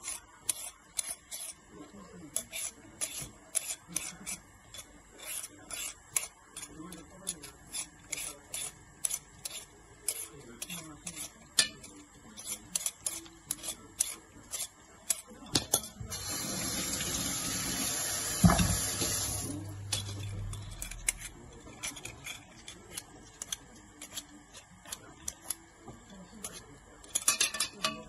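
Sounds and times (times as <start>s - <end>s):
peeler scraping vegetable skin: 0.0s - 1.7s, 2.3s - 16.4s, 19.0s - 25.6s, 26.4s - 27.3s
peeler clattering into metal pan: 27.1s - 28.0s.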